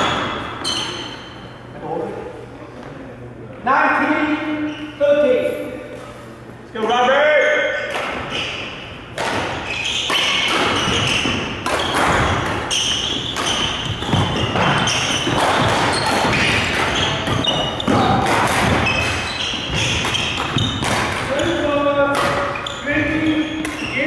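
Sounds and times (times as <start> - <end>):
shoes squeaking on court floor: 0.0 - 1.7, 4.4 - 6.2, 6.8 - 24.0
racket striking shuttlecock: 7.9 - 23.9.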